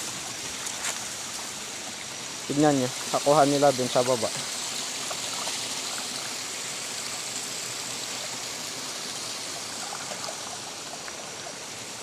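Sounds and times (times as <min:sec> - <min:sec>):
stream rushing over stones: 0:00.0 - 0:12.0.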